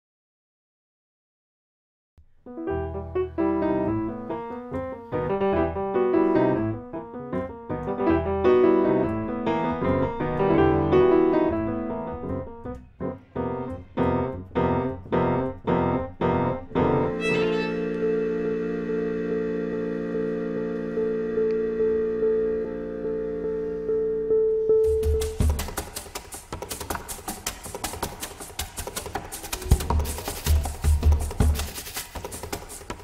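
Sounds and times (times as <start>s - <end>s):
instrumental piano music: 2.5s - 25.7s.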